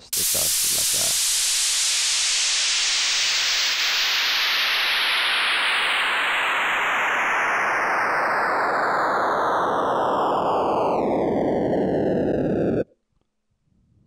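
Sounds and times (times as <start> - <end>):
synthesized white noise sweep: 0.0 - 12.9.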